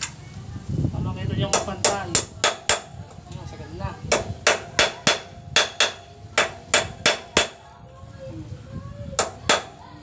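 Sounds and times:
hammer striking metal: 4.1 - 7.6.

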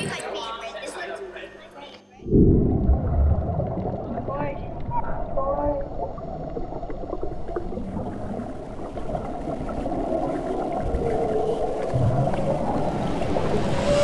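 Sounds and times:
bubbling: 2.2 - 14.0
underwater low rumble: 2.2 - 14.0.

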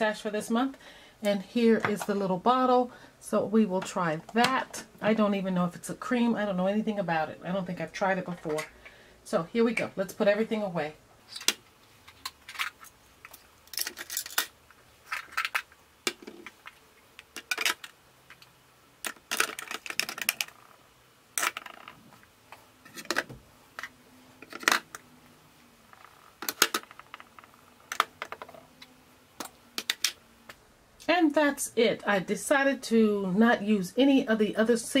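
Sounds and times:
plastic clicks and clatters: 11.4 - 14.5, 15.1 - 20.6, 21.4 - 22.0, 22.9 - 25.0, 26.0 - 28.6, 29.4 - 30.2.

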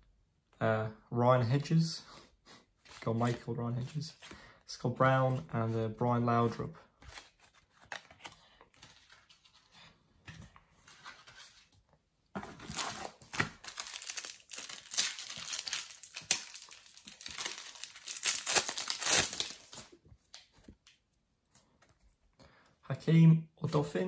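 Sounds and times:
foil wrapper tearing and crinkling: 12.7 - 19.9.

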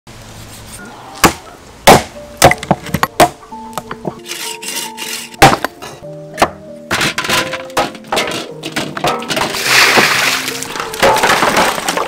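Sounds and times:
background music: 1.0 - 12.0
cleaver chopping bones on wood: 1.2 - 3.4, 5.4 - 5.8, 6.4 - 8.0.

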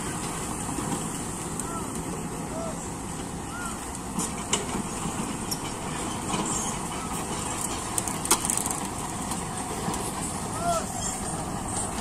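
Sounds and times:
diesel machinery engine running: 0.0 - 12.0.

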